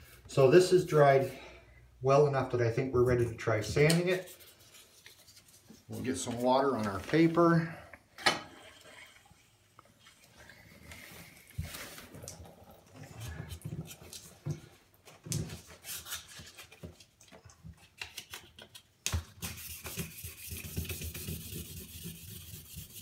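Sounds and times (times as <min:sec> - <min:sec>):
wet sandpaper rubbing: 0:19.4 - 0:23.0
sanding block knocking on bathtub: 0:19.5 - 0:23.0.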